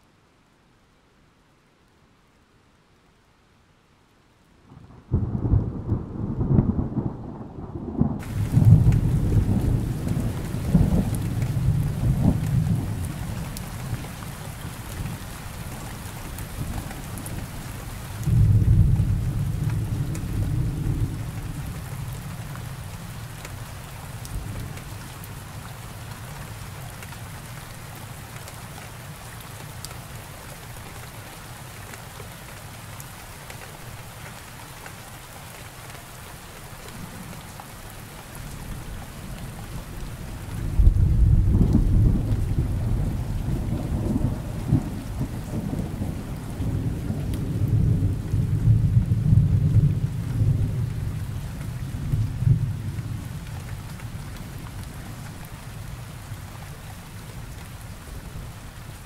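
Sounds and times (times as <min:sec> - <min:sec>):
steady rain: 0:00.0 - 0:59.0
thunder rumbles: 0:04.7 - 0:23.2, 0:39.3 - 0:54.6
thunder clap: 0:05.1 - 0:13.1.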